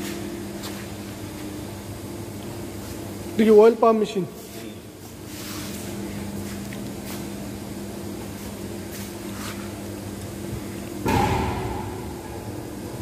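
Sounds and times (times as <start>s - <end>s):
machinery humming: 0.0s - 13.0s
loud metallic knock: 11.0s - 12.6s.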